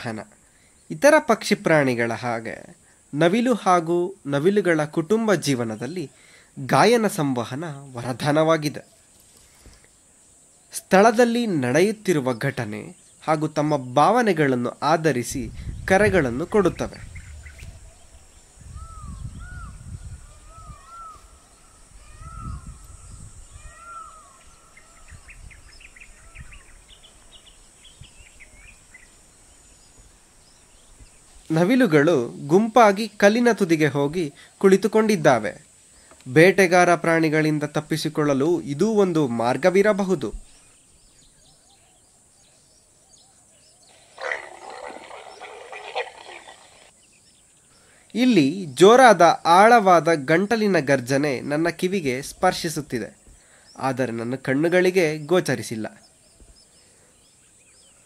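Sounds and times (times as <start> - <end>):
small birds chirping: 0.0 - 35.2, 35.8 - 58.0
rising-and-falling bird calls: 16.4 - 31.1, 40.5 - 48.0
leopard roaring: 43.9 - 46.9.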